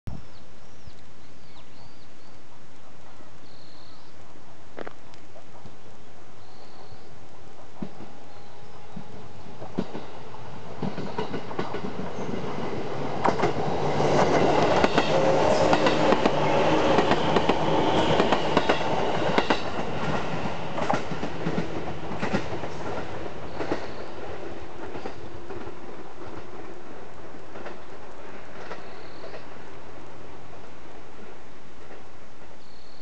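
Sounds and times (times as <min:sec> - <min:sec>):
train hum: 0:04.0 - 0:33.0
wheels clacking over rail joints: 0:08.8 - 0:29.7.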